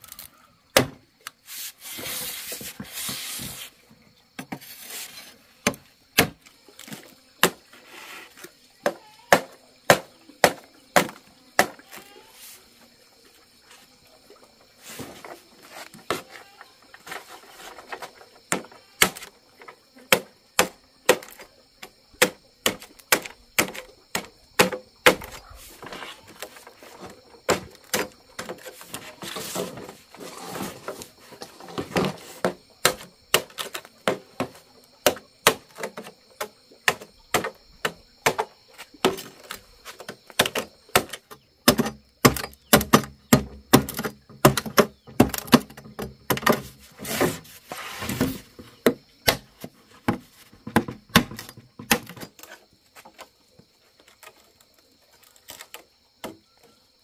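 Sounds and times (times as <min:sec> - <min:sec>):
cleaver chopping bamboo: 0:08.8 - 0:11.8, 0:20.1 - 0:26.0, 0:27.0 - 0:29.6, 0:31.7 - 0:46.7.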